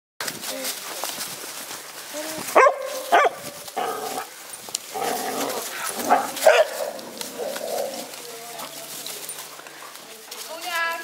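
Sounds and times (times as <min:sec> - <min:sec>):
dogs barking in play: 0:02.5 - 0:08.2.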